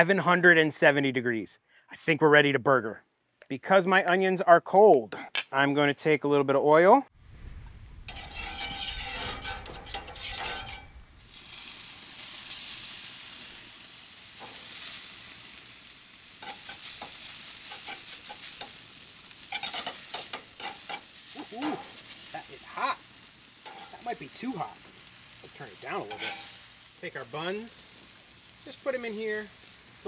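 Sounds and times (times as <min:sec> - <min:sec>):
onions sizzling on a griddle: 0:08.0 - 0:30.0
spatula scrapes and clicks: 0:08.1 - 0:10.9.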